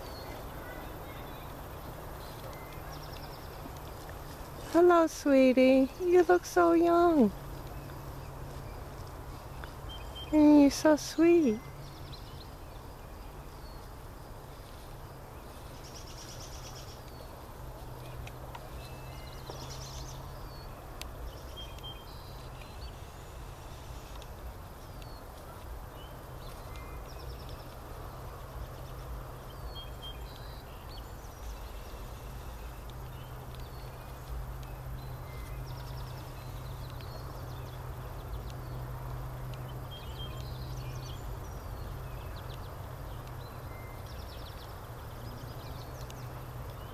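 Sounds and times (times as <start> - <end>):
bird chirps and calls: 0.0 - 3.8, 4.6 - 14.0, 24.9 - 46.9
steady low hum: 0.0 - 46.9.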